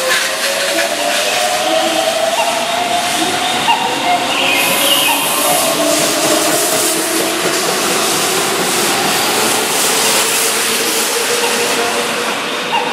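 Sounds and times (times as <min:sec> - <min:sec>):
train wheels rushing on rails: 0:00.0 - 0:12.9.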